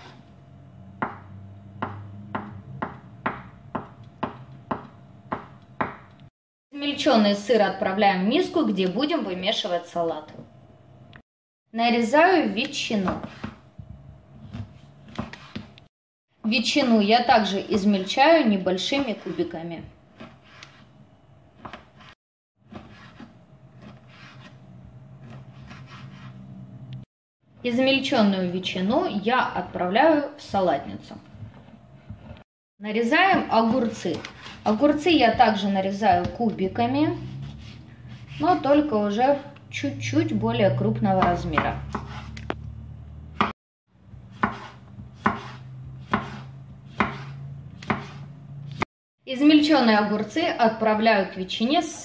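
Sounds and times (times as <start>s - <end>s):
knife chopping on wooden board: 1.0s - 6.1s, 13.1s - 15.7s, 41.2s - 42.6s, 43.3s - 43.6s, 44.2s - 48.9s.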